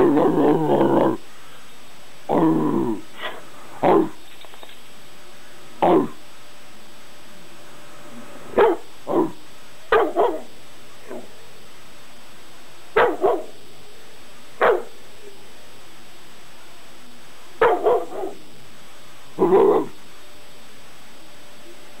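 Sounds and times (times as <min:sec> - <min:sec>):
dog barking: 0:08.6 - 0:09.3, 0:09.9 - 0:10.5, 0:11.1 - 0:11.3, 0:13.0 - 0:13.6, 0:14.6 - 0:15.0, 0:17.6 - 0:18.4, 0:19.4 - 0:20.0.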